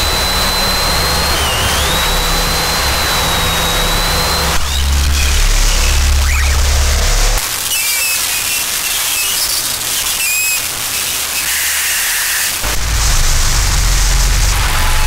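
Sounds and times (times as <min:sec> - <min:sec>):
heavy low rumble: 0:00.0 - 0:07.4, 0:12.6 - 0:15.0
high squealing glides: 0:00.0 - 0:09.4, 0:12.6 - 0:15.0.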